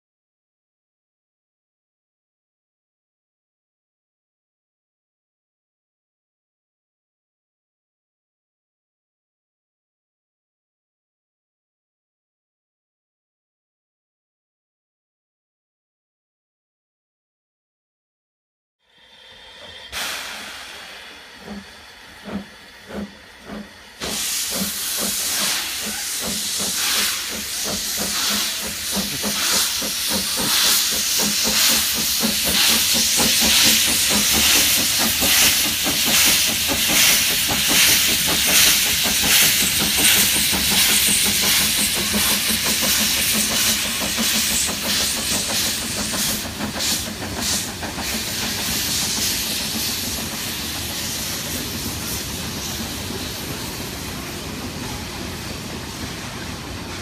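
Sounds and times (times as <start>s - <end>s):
steam locomotive exhaust chuffs: 18.9s - 57.0s
loud steam hiss: 19.0s - 57.0s.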